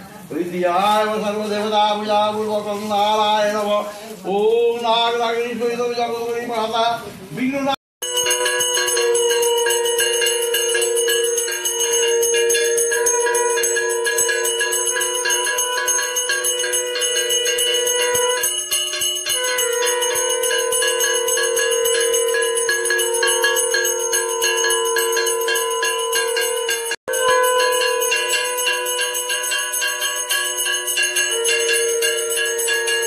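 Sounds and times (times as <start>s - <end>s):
hand bell rung rapidly: 8.0s - 33.0s.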